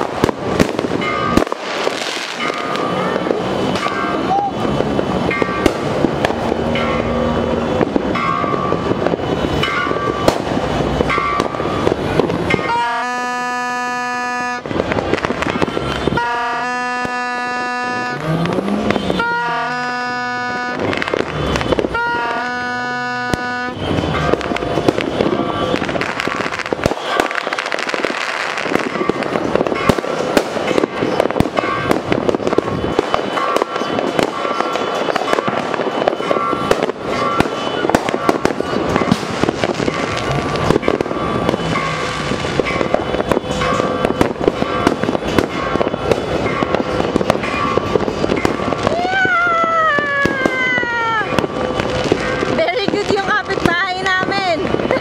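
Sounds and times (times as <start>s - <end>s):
fireworks crackling and popping: 0.0s - 55.0s
horn blasts: 11.1s - 30.0s, 31.6s - 48.9s.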